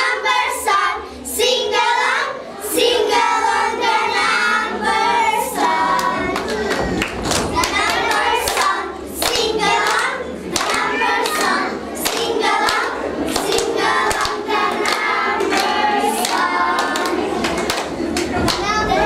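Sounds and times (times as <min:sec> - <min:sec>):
children singing in chorus: 0:00.0 - 0:19.0
hand claps: 0:05.9 - 0:18.7.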